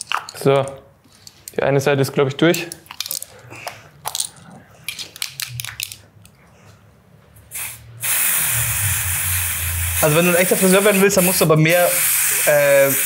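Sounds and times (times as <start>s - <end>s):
aerosol spray hiss: 7.5s - 13.0s.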